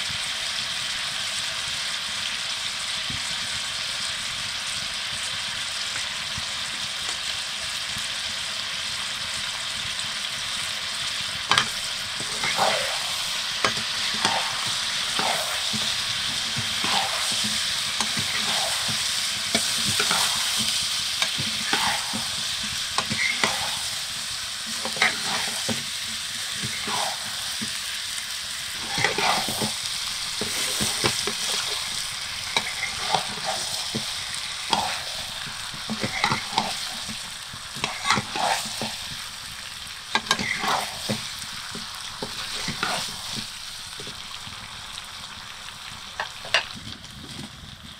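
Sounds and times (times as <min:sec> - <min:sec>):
chicken sizzling in pan: 0:00.0 - 0:47.9
wooden spatula scraping pan: 0:11.5 - 0:28.0, 0:28.7 - 0:39.3, 0:40.1 - 0:44.2.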